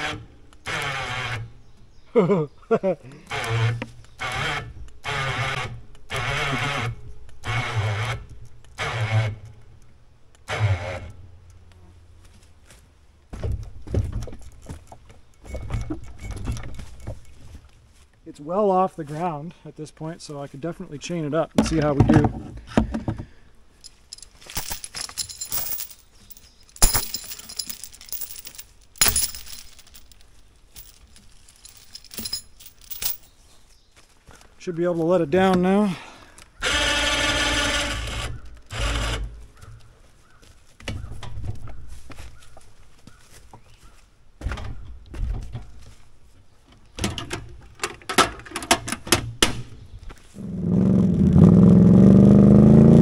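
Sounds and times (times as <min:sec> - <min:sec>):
electric winch pulling cable: 0:00.0 - 0:01.5, 0:03.3 - 0:08.2, 0:08.8 - 0:09.4, 0:36.6 - 0:39.3
steel chain clinking: 0:23.8 - 0:33.4.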